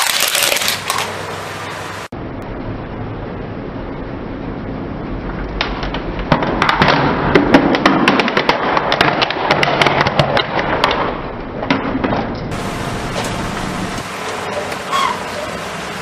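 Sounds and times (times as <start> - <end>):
plastic toy cracking and snapping: 0.0 - 1.1.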